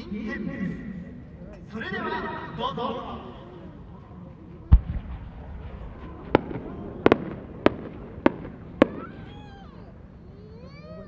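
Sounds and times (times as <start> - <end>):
low steady background noise: 0.0 - 11.0
fireworks cracking and popping: 4.7 - 9.9.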